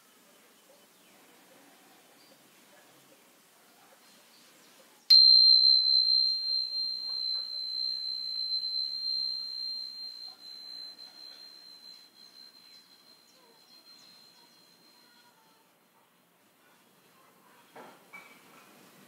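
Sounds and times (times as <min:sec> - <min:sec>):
tuning fork ringing: 0:05.1 - 0:15.3.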